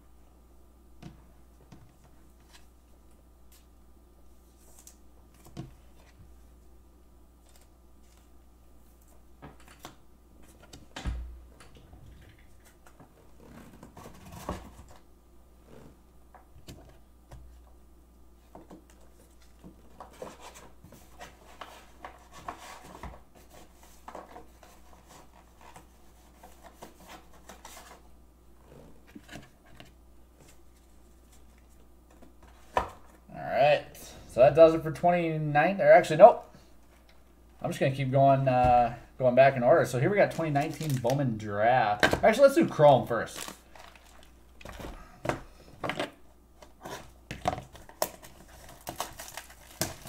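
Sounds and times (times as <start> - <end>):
rustling and scratching on desk: 18.6 - 32.7.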